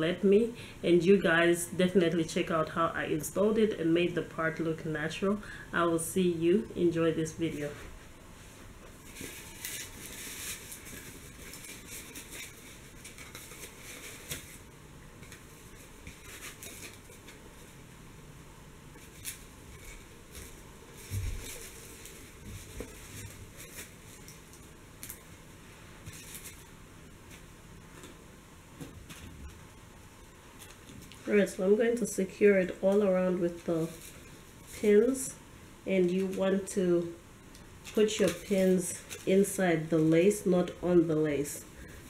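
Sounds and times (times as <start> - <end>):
wig rustling and scratching: 7.4 - 17.9, 18.9 - 28.2, 28.8 - 36.8, 37.8 - 40.8.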